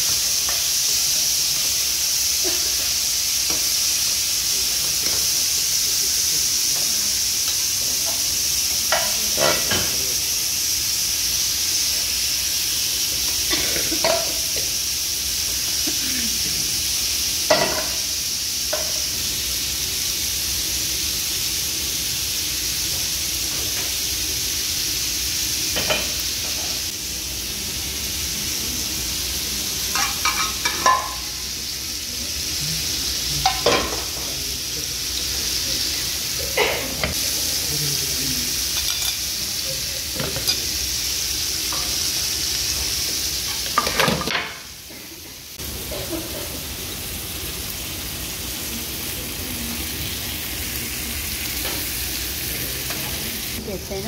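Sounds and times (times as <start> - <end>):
food sizzling on hot plate: 0.0 - 54.0
utensils clinking and scraping plate: 6.7 - 10.0, 29.9 - 31.4, 33.4 - 34.3, 38.6 - 39.3, 40.0 - 40.8, 43.4 - 44.7.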